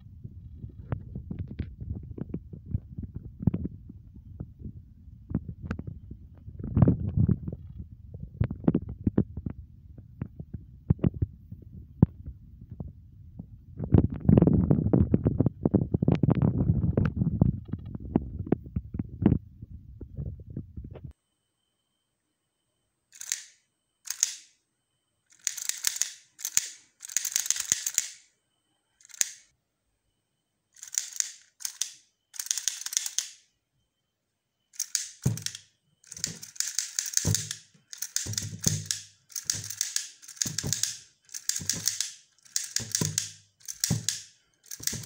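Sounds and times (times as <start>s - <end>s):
toy mechanism clicking clatter: 23.1s - 24.5s, 25.3s - 28.3s, 29.0s - 29.5s, 30.8s - 33.5s, 34.8s - 45.0s.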